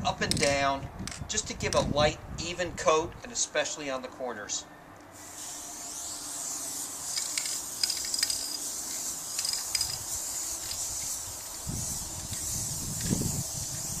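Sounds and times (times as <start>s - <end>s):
aerosol can hissing: 5.2s - 14.0s.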